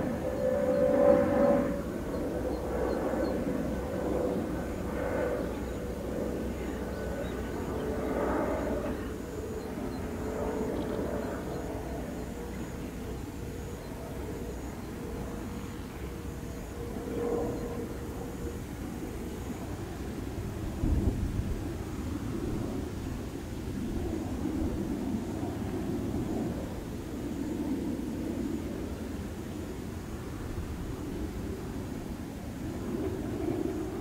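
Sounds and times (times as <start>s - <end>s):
jet airliner engines rumbling: 0.0s - 34.0s.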